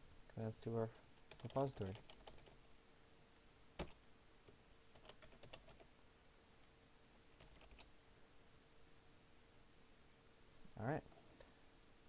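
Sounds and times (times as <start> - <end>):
faint steady hum: 0.0 - 12.0
computer keyboard keystrokes: 1.3 - 2.6, 3.8 - 4.0, 4.9 - 5.9, 7.4 - 7.9.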